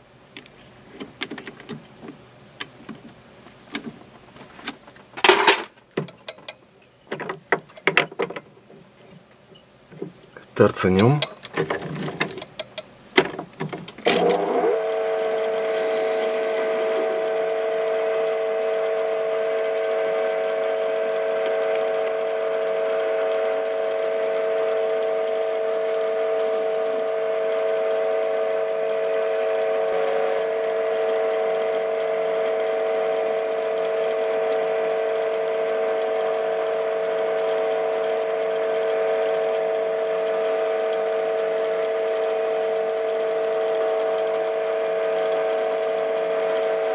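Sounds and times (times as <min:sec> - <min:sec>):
clicks and knocks: 0:04.6 - 0:10.2
metal lathe humming: 0:07.2 - 0:46.9.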